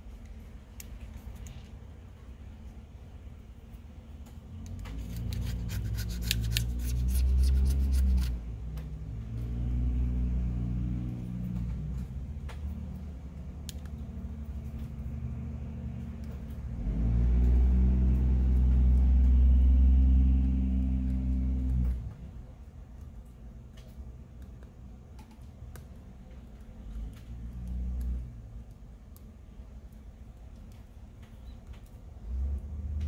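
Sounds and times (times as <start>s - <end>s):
vehicle engine rumble: 0.0s - 25.0s.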